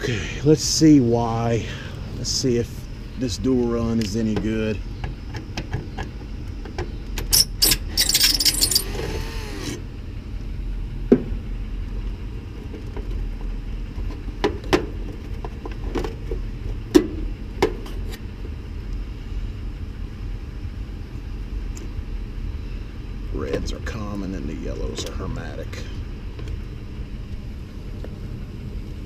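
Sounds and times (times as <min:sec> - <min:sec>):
cordless drill whirring: 0:07.8 - 0:09.8.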